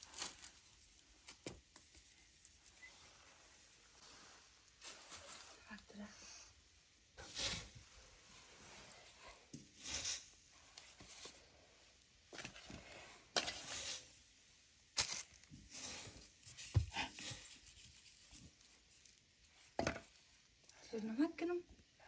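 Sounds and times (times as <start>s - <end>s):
soft rustling and handling: 0.0s - 6.2s, 7.3s - 14.0s, 15.0s - 20.7s.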